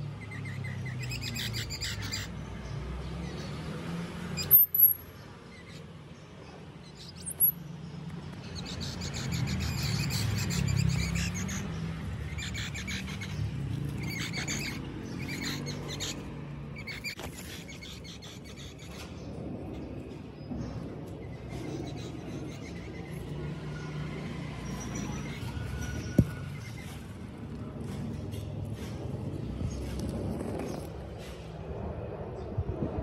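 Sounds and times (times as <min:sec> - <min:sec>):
sharp high squeak: 0:04.4 - 0:05.1.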